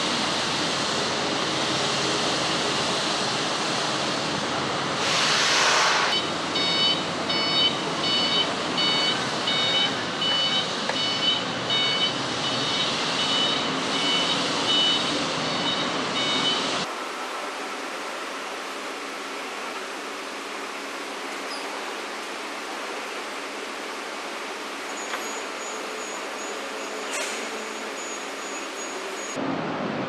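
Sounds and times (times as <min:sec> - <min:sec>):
warehouse machinery noise: 0:00.0 - 0:30.0
electronic warning beeper: 0:06.1 - 0:16.9.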